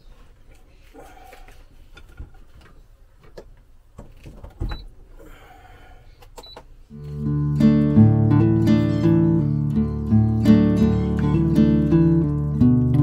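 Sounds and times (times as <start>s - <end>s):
acoustic guitar music: 6.9s - 13.0s.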